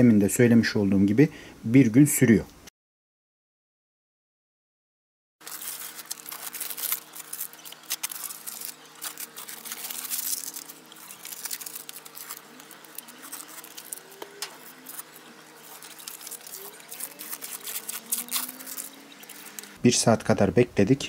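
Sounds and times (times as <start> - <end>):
tape and paper peeling off: 5.4 - 19.8.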